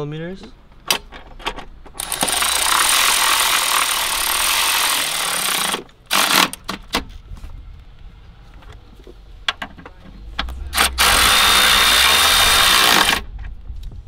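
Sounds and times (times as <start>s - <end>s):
power tool running: 2.0s - 6.6s, 10.7s - 13.2s.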